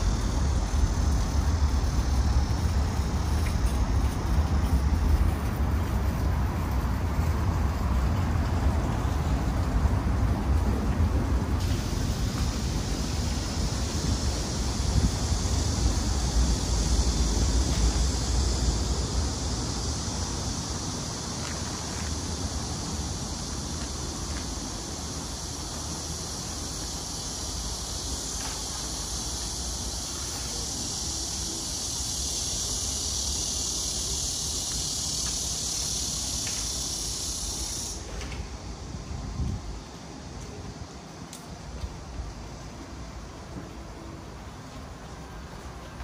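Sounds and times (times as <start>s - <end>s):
wind rumble on microphone: 0.0s - 19.4s, 38.4s - 40.0s
heavy rain hiss: 0.0s - 46.0s.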